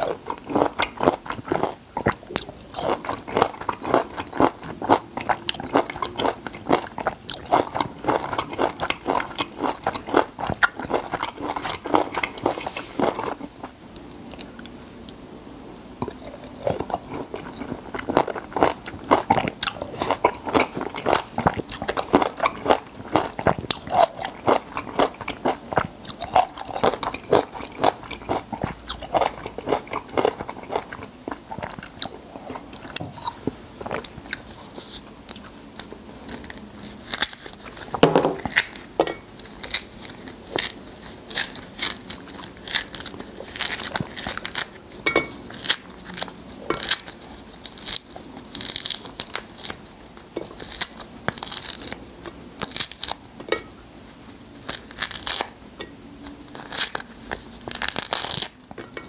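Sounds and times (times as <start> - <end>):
chewing: 0.0 - 14.8, 16.0 - 59.0
lemon rind tearing: 54.6 - 55.6, 56.5 - 58.6.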